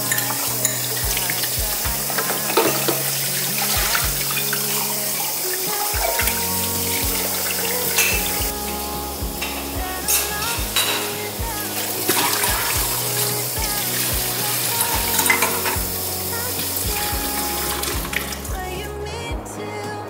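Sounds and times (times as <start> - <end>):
soft background music: 0.0 - 20.0
cookware clinking: 0.1 - 6.3.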